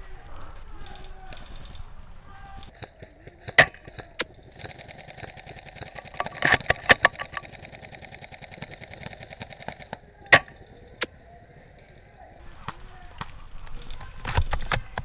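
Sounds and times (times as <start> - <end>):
rapid mechanical rattle: 0.7 - 11.1
airsoft gun cracks: 2.6 - 11.1.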